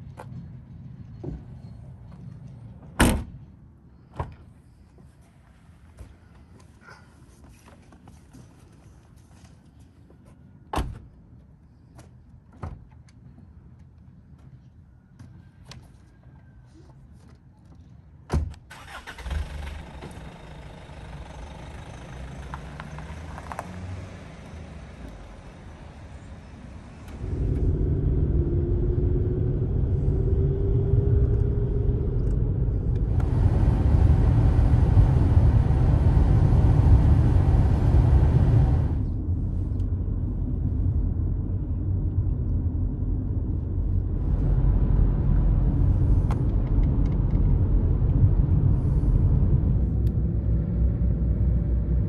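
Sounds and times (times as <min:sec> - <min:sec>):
car engine and road rumble: 0:17.2 - 0:52.0.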